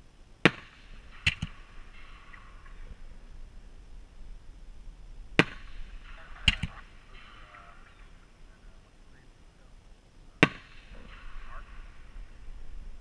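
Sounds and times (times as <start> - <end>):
fireworks banging: 0.0 - 9.3.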